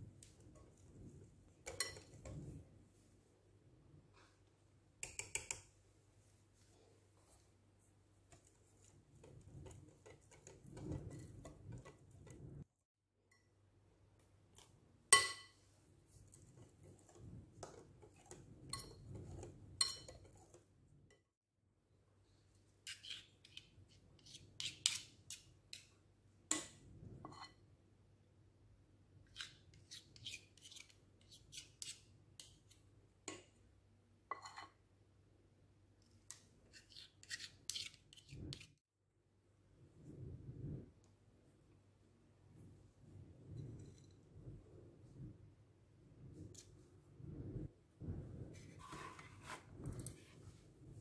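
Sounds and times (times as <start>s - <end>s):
stirring thick batter: 0.0s - 3.1s, 6.6s - 12.8s, 15.6s - 21.3s
spoon clicking and scraping: 1.6s - 2.5s, 5.0s - 5.7s, 8.3s - 12.6s, 16.2s - 21.2s, 22.8s - 25.9s, 36.2s - 38.7s.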